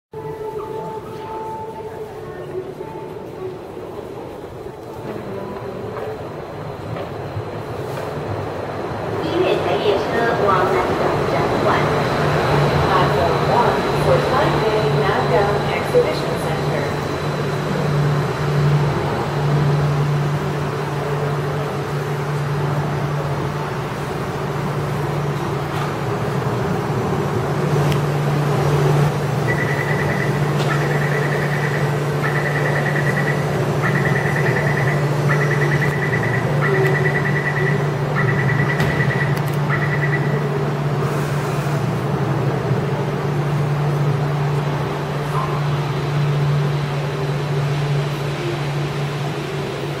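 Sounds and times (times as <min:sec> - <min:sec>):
train humming at platform: 0:00.1 - 0:50.0
high door warning beeps: 0:29.4 - 0:40.5.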